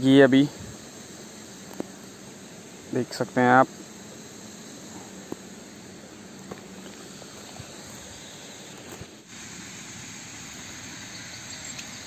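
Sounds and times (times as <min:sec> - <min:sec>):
outdoor background hiss: 0:00.0 - 0:12.0
faint ticks: 0:11.6 - 0:12.0.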